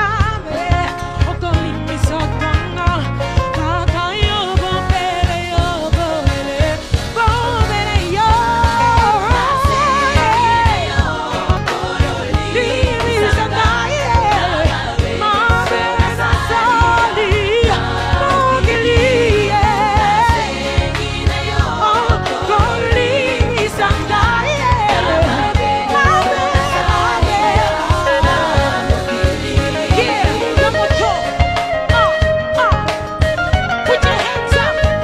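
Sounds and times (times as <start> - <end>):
woman singing with vibrato: 0.0 - 33.0, 33.7 - 35.0
band with steady beat and bass: 0.0 - 35.0
choir voices: 7.8 - 32.0.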